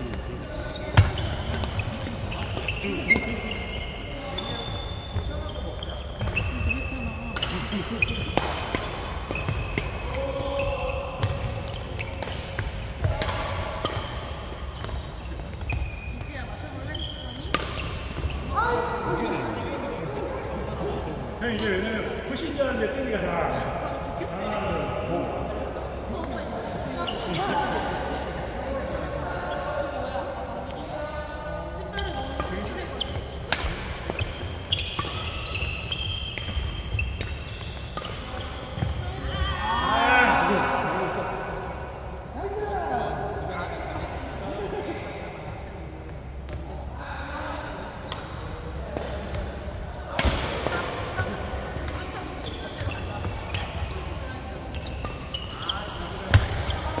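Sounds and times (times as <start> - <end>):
sneakers squeaking on court: 0.0 - 18.8, 31.9 - 39.5, 50.1 - 57.0
racket hitting shuttlecock: 7.3 - 10.1, 11.2 - 15.0, 17.4 - 18.3, 33.1 - 38.9, 50.1 - 52.0, 56.3 - 57.0.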